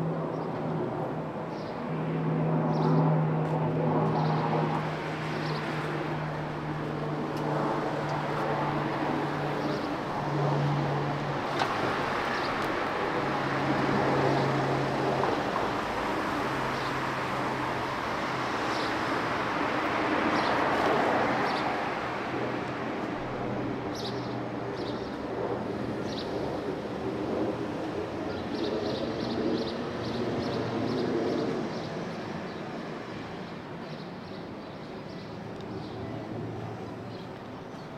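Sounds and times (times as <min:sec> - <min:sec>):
road noise: 0:00.0 - 0:37.9
vehicles passing: 0:01.5 - 0:25.0.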